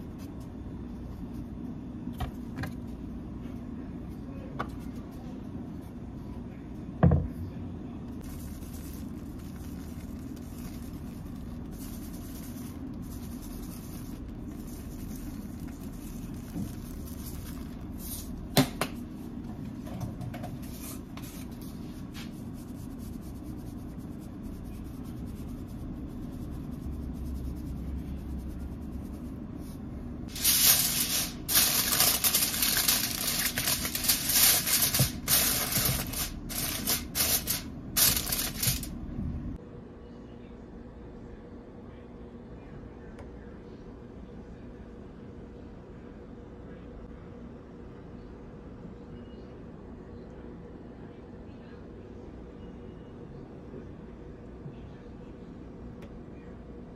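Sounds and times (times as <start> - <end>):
steady low hum: 0.0 - 56.9
aluminium foil crinkling: 8.2 - 18.4, 30.3 - 39.0.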